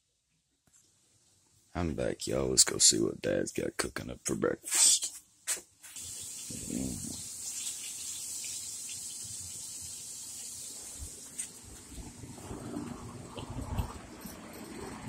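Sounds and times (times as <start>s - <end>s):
steady hiss: 1.0s - 12.2s.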